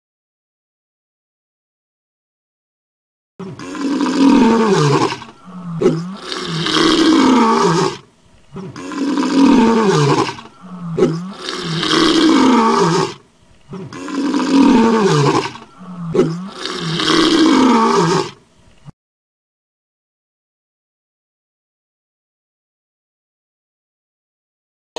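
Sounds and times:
lion grunt: 0:03.4 - 0:18.4
lion roaring: 0:03.4 - 0:18.4.

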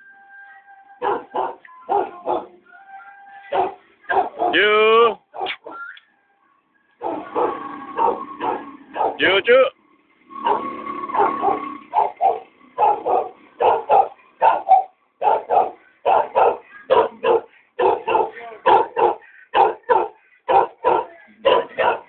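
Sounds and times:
small dog barking: 0:01.0 - 0:02.6, 0:03.5 - 0:04.6, 0:07.0 - 0:09.2, 0:10.4 - 0:22.0.

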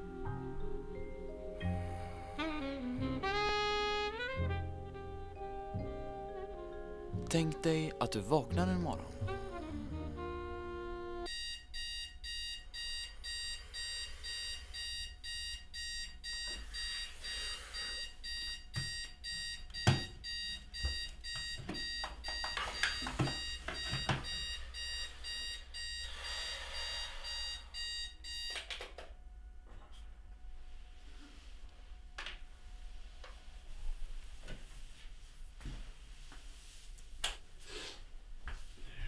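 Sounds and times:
alarm clock beeping: 0:11.3 - 0:28.6.

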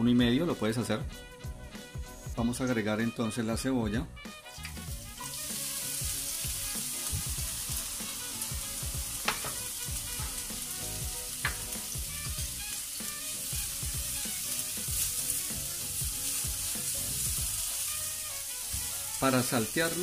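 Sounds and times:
onion sizzling in hot oil: 0:04.4 - 0:20.0.

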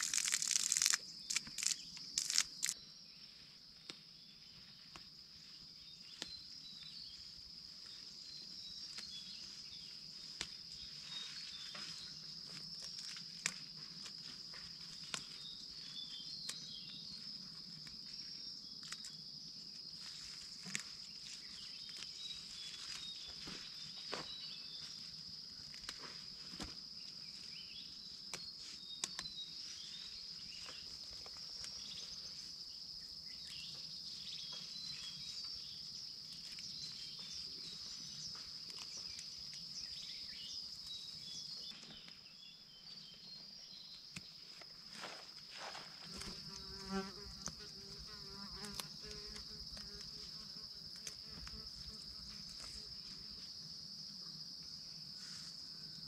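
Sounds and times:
lettuce leaves rustling and snapping: 0:00.0 - 0:02.8
high-pitched insect chorus: 0:00.0 - 0:56.0.

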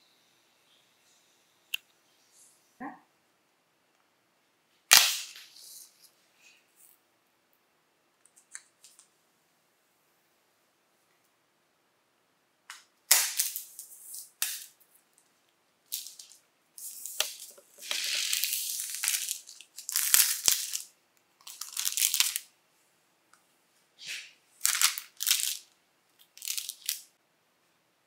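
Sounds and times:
plastic shrink wrap crinkling and tearing: 0:15.9 - 0:22.5, 0:24.6 - 0:27.1.

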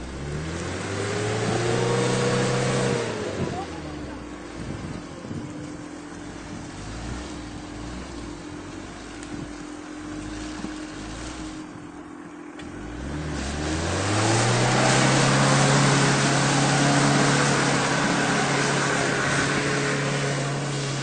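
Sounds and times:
engine revving: 0:00.0 - 0:21.0
rushing hiss: 0:13.1 - 0:21.0.

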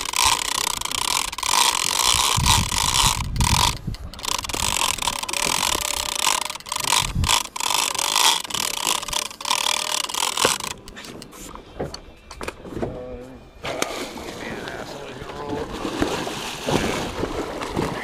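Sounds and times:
fishing reel whirring: 0:00.0 - 0:11.0.

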